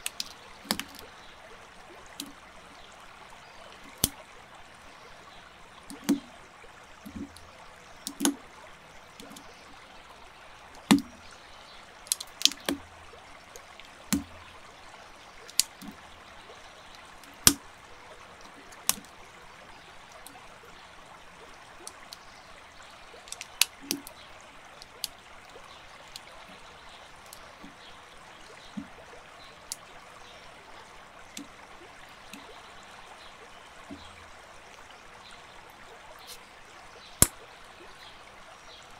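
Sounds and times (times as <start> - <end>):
plastic bricks clicking together: 12.1 - 12.8, 23.2 - 24.1
steady hiss: 36.2 - 36.6.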